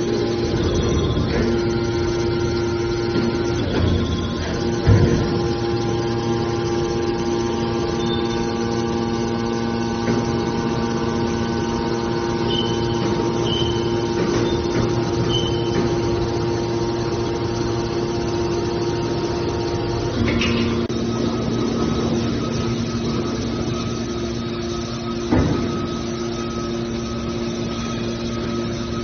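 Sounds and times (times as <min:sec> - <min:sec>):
hydraulic pump motor humming: 0:00.0 - 0:29.0
short high squeaks: 0:12.5 - 0:15.8.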